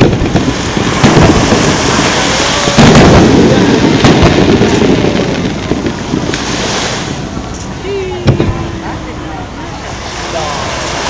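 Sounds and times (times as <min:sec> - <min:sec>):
firework shells bursting: 0:00.0 - 0:08.6
low rumble: 0:00.0 - 0:11.0.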